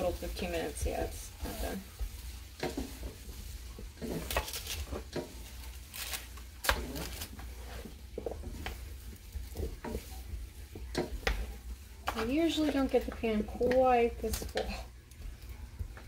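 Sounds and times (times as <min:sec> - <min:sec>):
spatula scraping metal baking sheet: 0:02.6 - 0:05.3.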